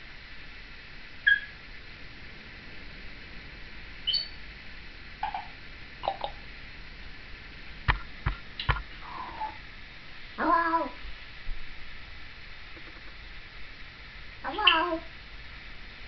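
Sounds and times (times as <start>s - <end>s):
parrot low-pitched calls: 1.2s - 1.6s, 4.0s - 4.4s, 5.2s - 6.4s, 9.0s - 9.6s, 10.4s - 11.0s, 14.4s - 15.1s
parrot whistles and chirps: 1.2s - 1.6s, 4.0s - 4.4s, 5.2s - 6.4s, 14.5s - 15.0s.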